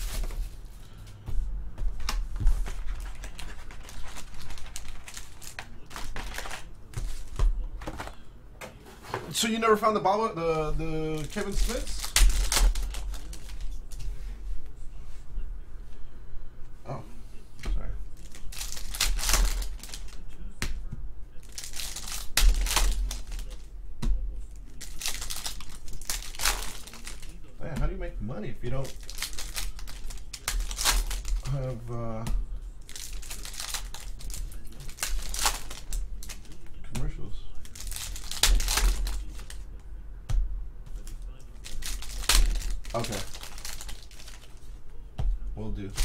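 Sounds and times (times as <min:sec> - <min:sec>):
cardboard and plastic wrapper rustling: 0:00.0 - 0:00.8, 0:01.8 - 0:08.2, 0:10.8 - 0:14.4, 0:18.1 - 0:20.5, 0:21.3 - 0:23.7, 0:24.6 - 0:28.0, 0:28.6 - 0:36.8, 0:37.5 - 0:39.7, 0:40.9 - 0:45.0.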